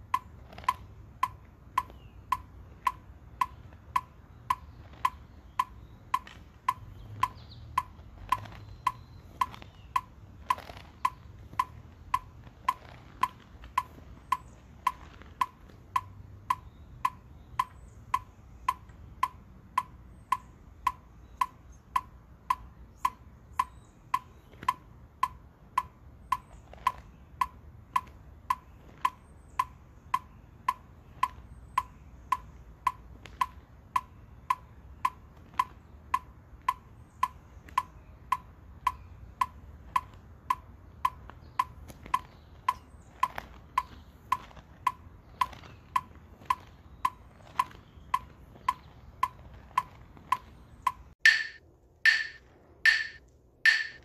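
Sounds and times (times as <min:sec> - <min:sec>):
electronic metronome ticking: 0:00.0 - 0:54.0.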